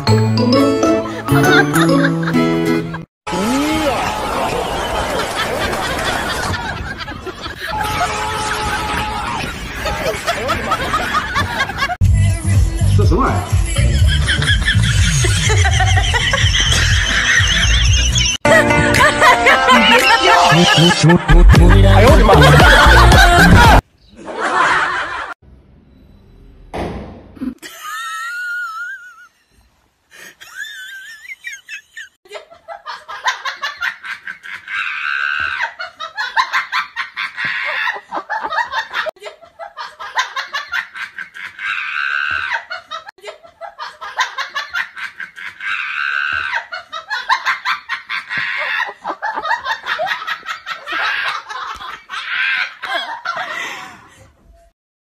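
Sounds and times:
looped laughter: 13.7 - 25.4, 30.2 - 54.3.

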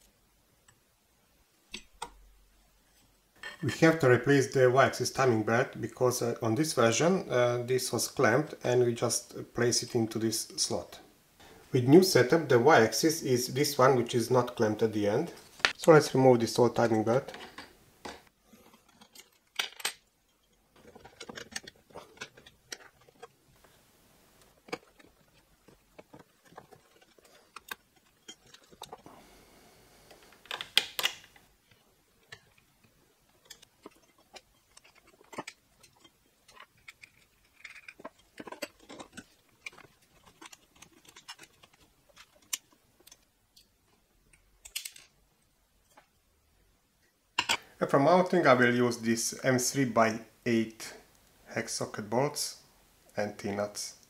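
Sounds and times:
metal parts clattering: 18.6 - 23.3, 24.5 - 29.0, 33.4 - 43.2, 44.6 - 45.2
small metal parts clicking and jingling: 18.7 - 23.3, 24.5 - 29.0, 32.2 - 45.2.

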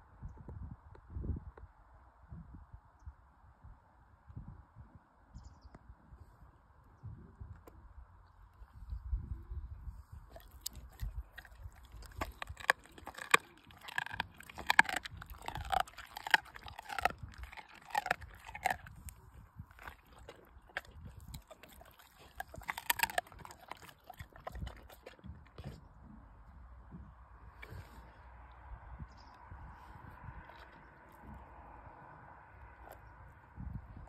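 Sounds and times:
dog chewing meat: 10.3 - 25.8.

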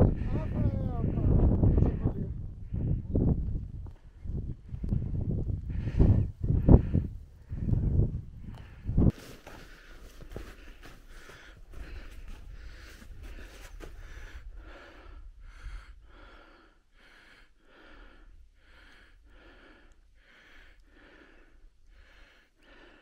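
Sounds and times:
wind rumbling on microphone: 0.0 - 16.3
heavy rhythmic breathing: 4.0 - 23.0.

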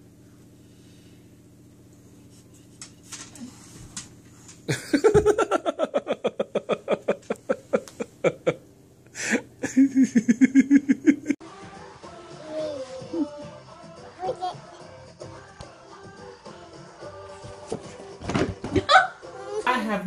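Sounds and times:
person laughing hard: 4.7 - 8.6, 9.2 - 11.4, 18.7 - 19.2.

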